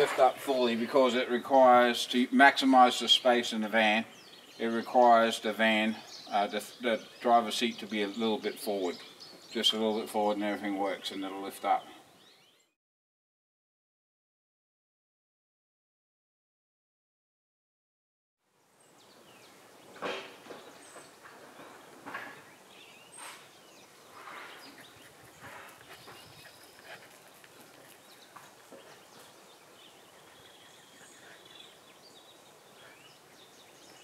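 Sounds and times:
steady background hiss: 0:00.0 - 0:12.4.

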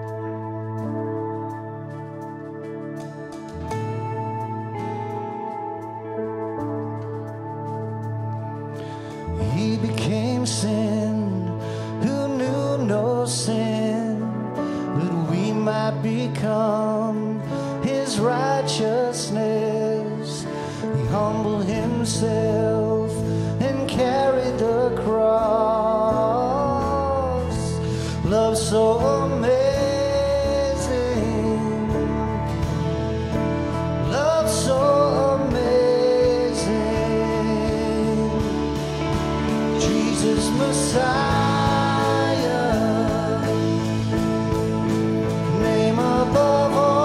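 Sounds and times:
bass: 0:00.0 - 0:47.0
drums: 0:00.0 - 0:47.0
man singing: 0:09.2 - 0:32.9, 0:33.9 - 0:47.0.

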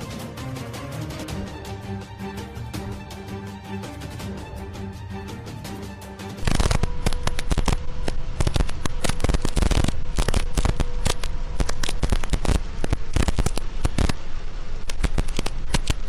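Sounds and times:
heavy rain on car windshield: 0:06.4 - 0:16.0.

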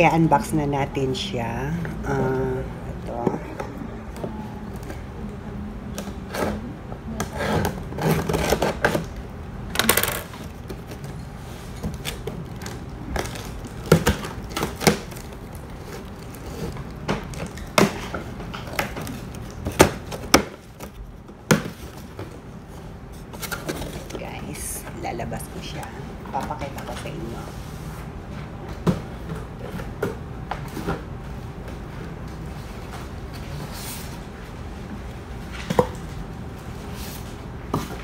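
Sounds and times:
scissors cutting packing tape: 0:07.4 - 0:09.1.

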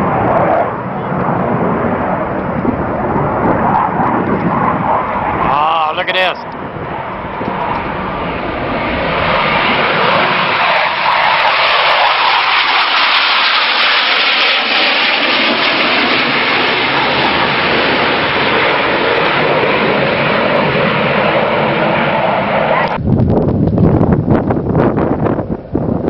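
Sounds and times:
jet roar: 0:00.0 - 0:26.0.

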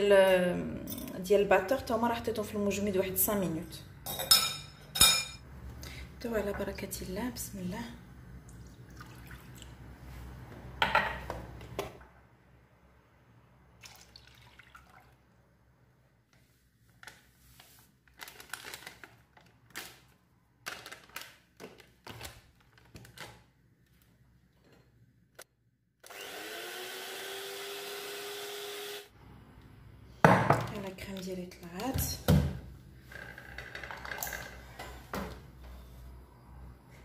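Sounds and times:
electric hand mixer whirring: 0:26.1 - 0:29.1.

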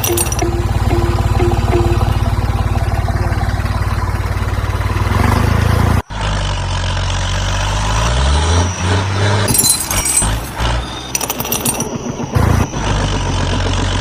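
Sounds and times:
clattering rattle: 0:00.0 - 0:02.0, 0:09.5 - 0:11.9.

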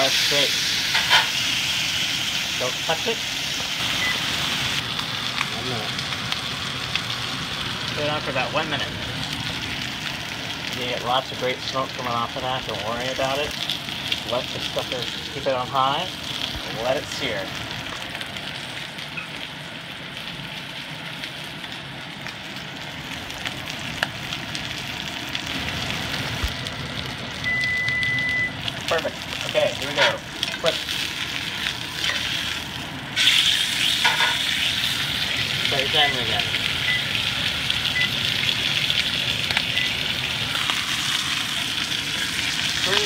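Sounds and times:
steak sizzling in a skillet: 0:00.0 - 0:43.0
oven timer beeps: 0:03.8 - 0:04.4, 0:26.7 - 0:28.6, 0:35.3 - 0:37.2, 0:37.9 - 0:38.4, 0:39.6 - 0:40.1.

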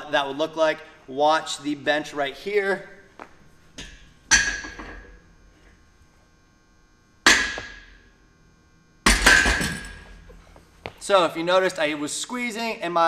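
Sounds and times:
barbell clanking on metal hooks: 0:04.3 - 0:05.0.

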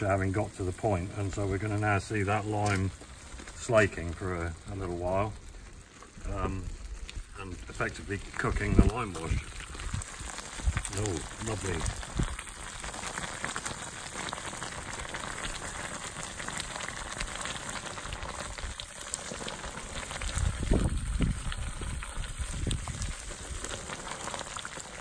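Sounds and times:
lime wash boiling and fizzing: 0:00.0 - 0:25.0.

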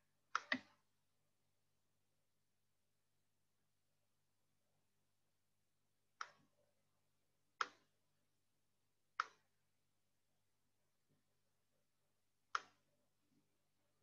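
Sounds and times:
computer mouse clicks: 0:00.3 - 0:00.8, 0:09.2 - 0:09.4, 0:12.5 - 0:12.8.

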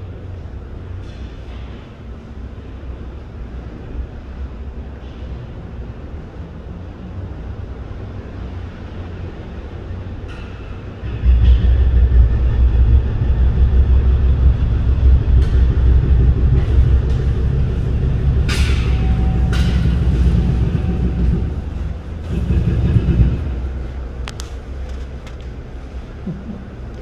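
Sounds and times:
diesel machinery rumbling: 0:00.0 - 0:27.0
sharp knocks: 0:14.2 - 0:23.8.

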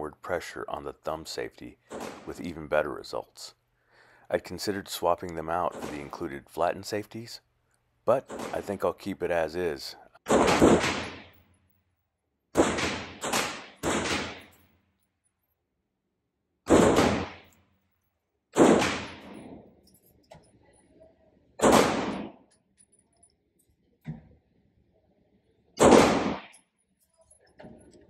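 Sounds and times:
pistol shots ringing indoors: 0:10.3 - 0:11.5, 0:12.5 - 0:14.7, 0:16.6 - 0:17.6, 0:18.6 - 0:19.6, 0:21.6 - 0:22.5, 0:25.8 - 0:26.7.

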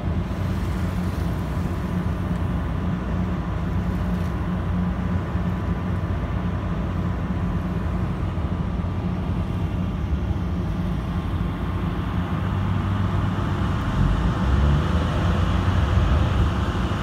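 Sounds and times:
boat engine rumble: 0:00.0 - 0:17.0
water noise: 0:00.0 - 0:17.0
wind: 0:00.0 - 0:17.0.

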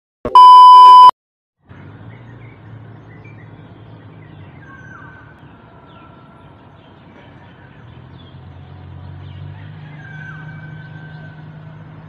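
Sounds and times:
loud electronic beep: 0:00.3 - 0:01.1
distant city traffic hum: 0:01.6 - 0:12.0.

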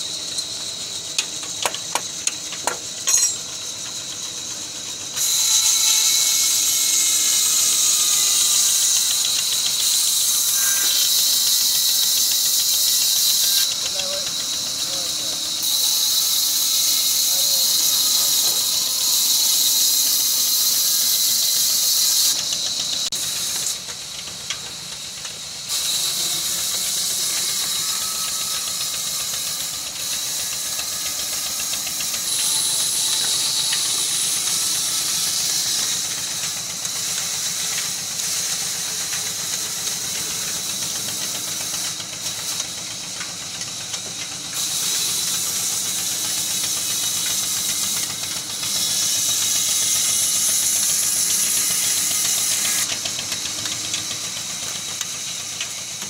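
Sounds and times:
band saw cutting a log: 0:00.0 - 0:56.0.

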